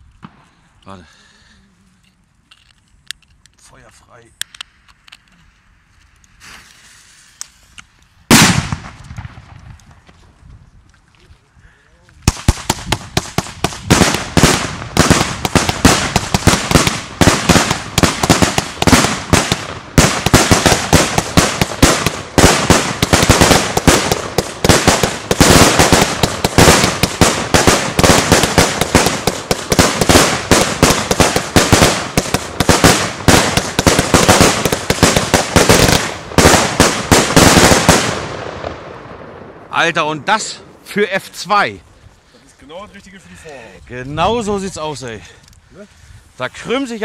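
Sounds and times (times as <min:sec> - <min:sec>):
firecrackers banging rapidly: 0:08.3 - 0:09.8, 0:12.2 - 0:38.8.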